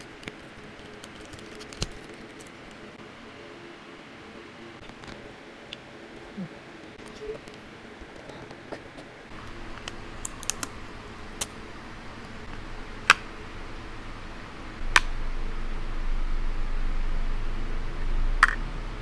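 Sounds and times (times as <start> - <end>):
protective film peeling: 0.0 - 2.8
low steady hum: 0.0 - 19.0.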